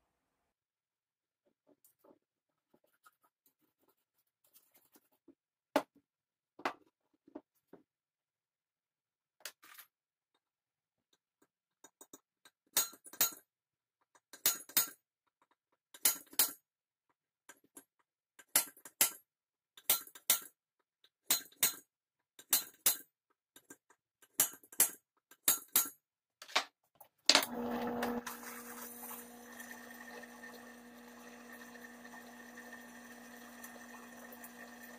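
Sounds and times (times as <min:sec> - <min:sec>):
drill press motor humming: 0:27.3 - 0:34.9.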